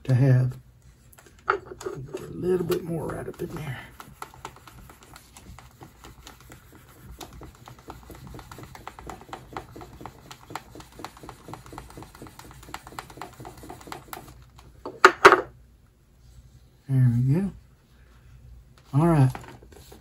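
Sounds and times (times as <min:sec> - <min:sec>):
wooden burnisher rubbing leather: 0:02.0 - 0:14.4.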